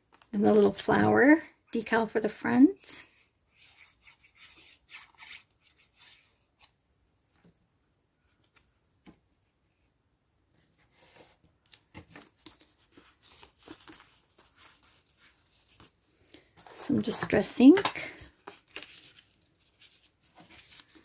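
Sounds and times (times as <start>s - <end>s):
cardstock rustling and rubbing: 3.1s - 6.8s, 10.6s - 21.0s.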